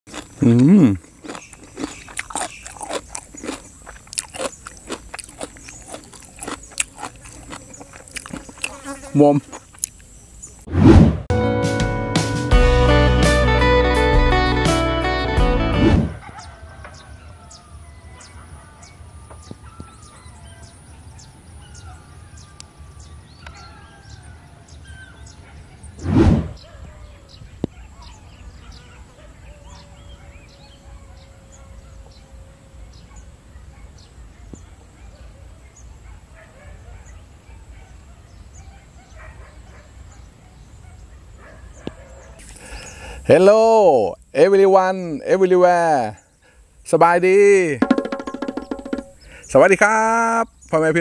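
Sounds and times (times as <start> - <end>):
person chewing and crunching: 0.1 - 10.1, 42.4 - 43.0
loud brief whoosh: 10.7 - 11.3, 15.8 - 16.2, 26.0 - 26.6
small birds chirping and whistling: 16.2 - 32.2.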